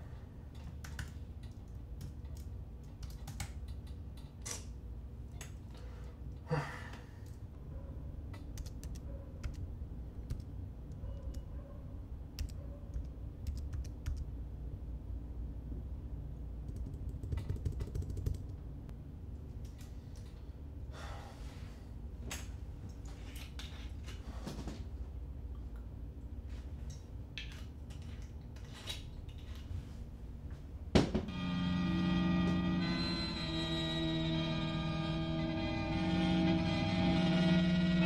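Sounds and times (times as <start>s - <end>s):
steady low hum: 0.0s - 38.0s
keyboard typing clicks: 0.8s - 3.9s, 8.4s - 9.6s, 10.2s - 11.5s, 12.4s - 14.3s, 16.7s - 18.6s.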